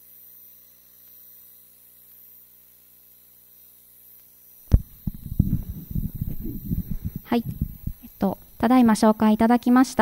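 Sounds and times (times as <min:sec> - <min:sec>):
faint mains hum: 0:00.0 - 0:10.0
light hiss: 0:03.6 - 0:10.0.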